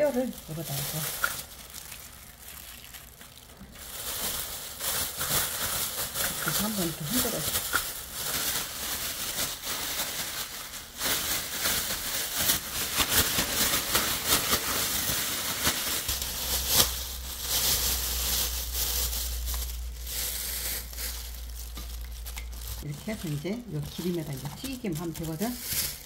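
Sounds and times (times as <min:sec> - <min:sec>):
plastic bag crinkling and rustling: 0:00.0 - 0:26.0.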